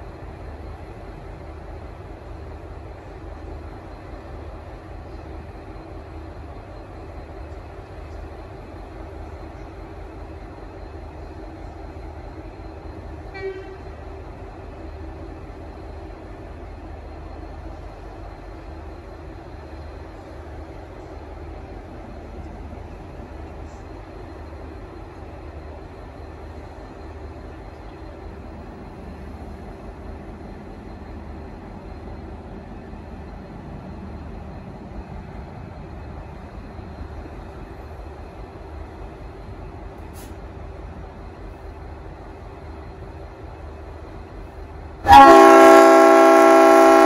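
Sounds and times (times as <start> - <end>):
diesel locomotive engine running: 0.0 - 47.0
air horn toot: 45.1 - 47.0.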